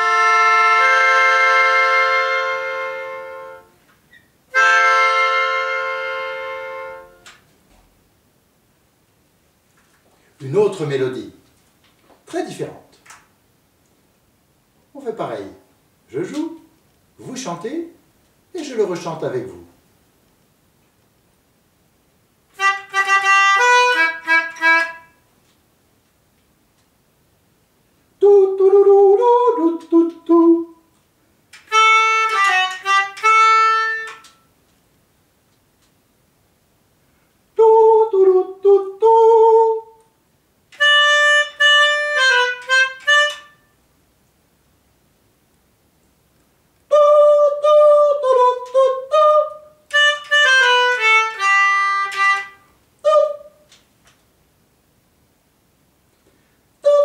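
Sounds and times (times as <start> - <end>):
melodica playing held notes: 0.0 - 3.8, 4.5 - 7.2, 22.5 - 25.2, 31.7 - 34.4, 40.8 - 43.6, 49.9 - 53.4
man singing: 28.2 - 30.8, 37.6 - 40.1, 46.9 - 49.7, 53.0 - 53.6.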